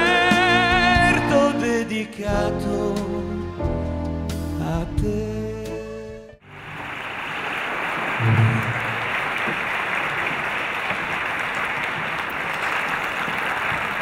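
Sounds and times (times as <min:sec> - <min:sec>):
audience applauding: 0:06.4 - 0:14.0.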